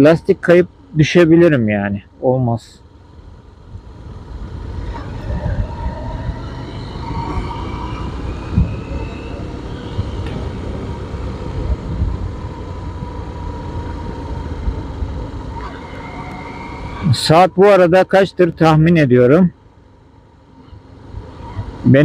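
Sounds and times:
motorcycle engine rumble: 1.9 - 17.6
wind noise: 3.6 - 17.3.

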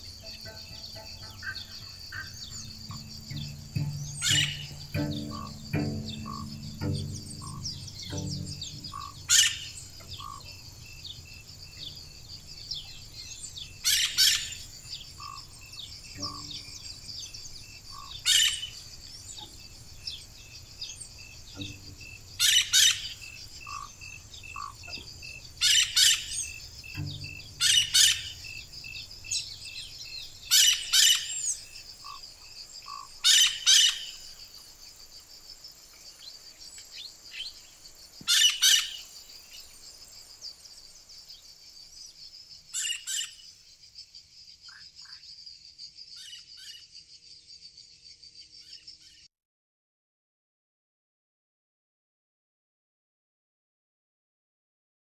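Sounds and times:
fast ticking: 0.0 - 10.7
high insect chorus: 0.0 - 49.2.

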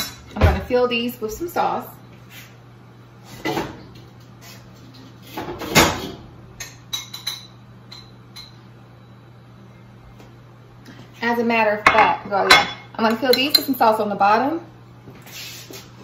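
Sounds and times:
faint steady hum: 6.2 - 15.3.

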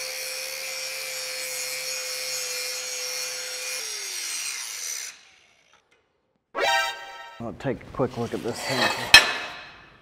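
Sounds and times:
angle grinder grinding steel: 0.0 - 5.9.

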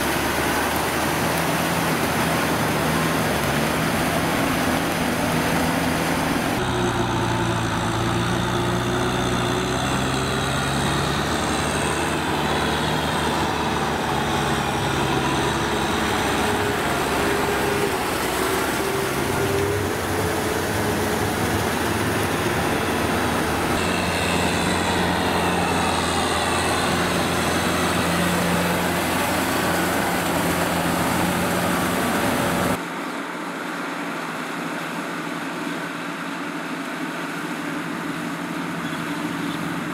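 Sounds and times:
tractor diesel engines under load: 0.0 - 39.9.

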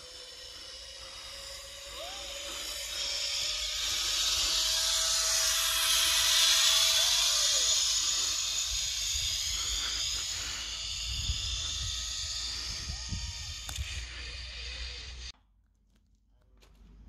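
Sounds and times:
faint steady whine: 0.0 - 15.4
zip-line trolley whirring on cable: 0.0 - 15.4
wind rumbling on microphone: 8.4 - 15.3.

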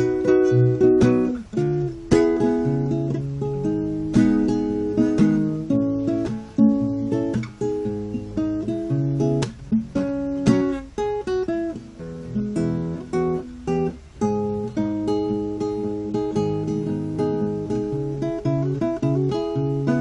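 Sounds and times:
fingerpicked classical guitar: 0.0 - 20.0.

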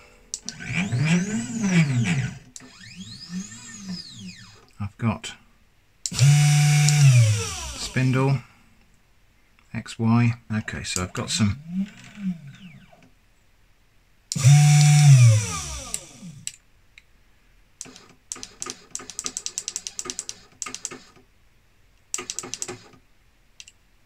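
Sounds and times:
machine whirring: 0.0 - 4.7, 6.1 - 8.1, 11.3 - 13.1, 14.3 - 16.5
rapid stepper motor ticks: 0.3 - 4.7, 6.1 - 8.0, 14.3 - 16.5.

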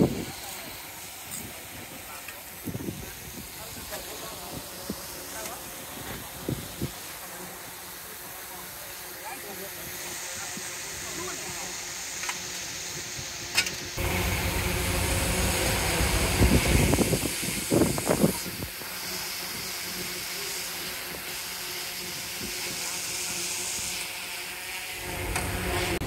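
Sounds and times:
bulldozer diesel engine running: 14.0 - 17.3, 25.0 - 26.0.

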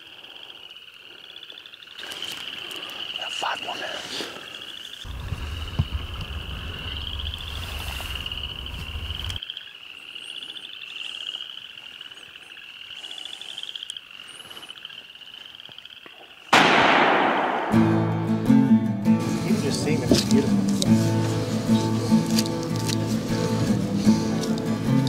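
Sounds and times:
frogs trilling: 0.0 - 16.6
low rumble: 5.1 - 9.4
rifle shot: 16.6 - 18.4.

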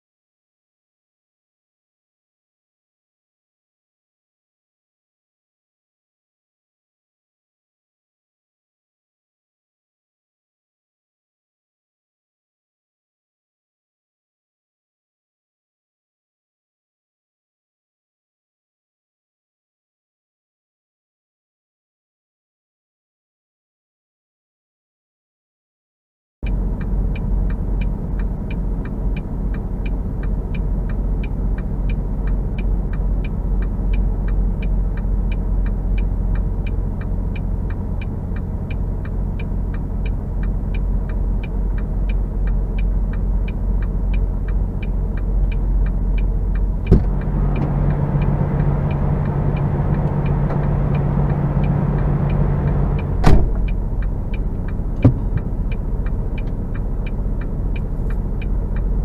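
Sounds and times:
second truck engine passing: 26.4 - 59.0
truck diesel engine idling: 26.5 - 59.0
sharp knocks: 46.9 - 47.2, 55.0 - 55.4.

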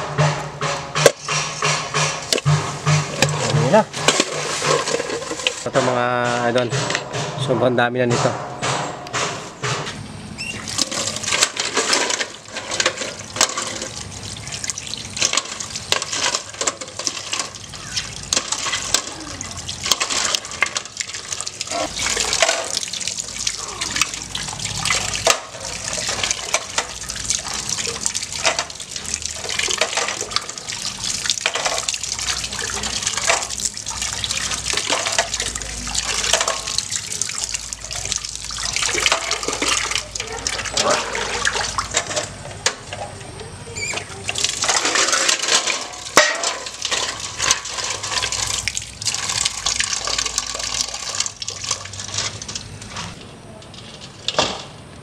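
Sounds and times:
tap water splashing into a pot: 10.6 - 43.1, 44.1 - 53.1.

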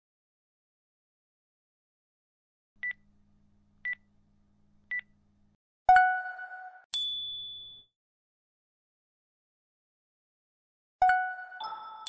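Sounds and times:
bell ding: 7.0 - 7.9
ringing chime: 7.0 - 7.9, 11.6 - 12.0.

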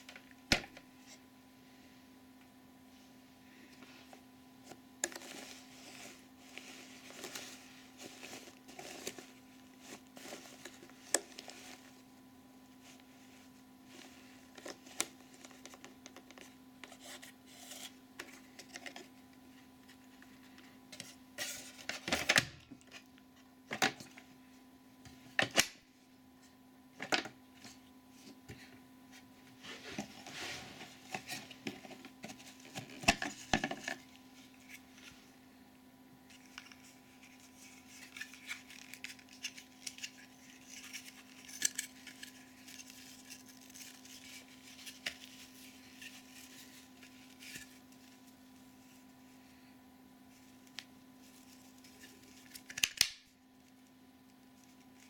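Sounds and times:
plastic rubbing and rustling: 4.6 - 23.0, 27.5 - 35.3, 36.3 - 49.2.

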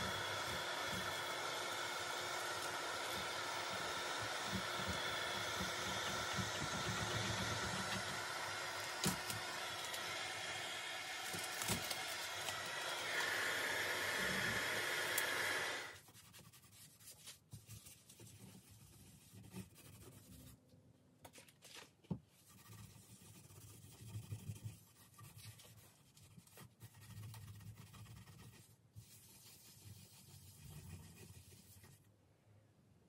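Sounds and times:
heat gun blowing: 0.0 - 16.0
cloth rubbing on wood: 22.4 - 32.1.

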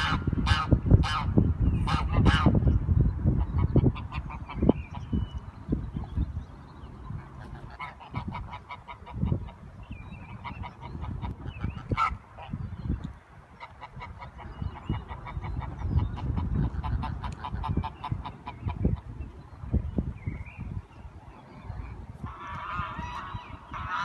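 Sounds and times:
waterfowl honking: 0.0 - 2.6, 7.3 - 9.6, 10.3 - 12.6, 13.6 - 19.1, 22.2 - 24.0.

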